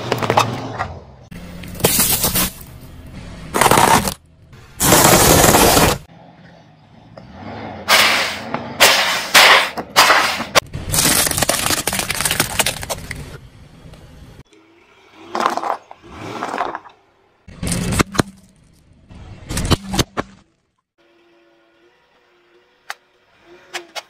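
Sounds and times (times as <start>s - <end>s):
containers bursting under car tyre: 8.8s - 13.3s
plastic toy cars cracking: 10.8s - 13.3s.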